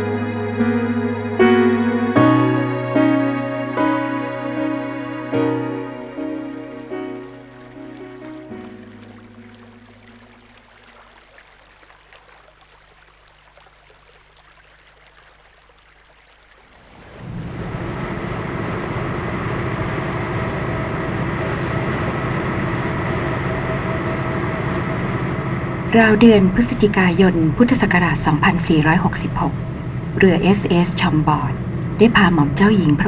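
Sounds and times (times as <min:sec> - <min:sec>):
music: 0:00.0 - 0:10.4
water rushing: 0:00.0 - 0:33.0
low engine hum: 0:16.7 - 0:33.0.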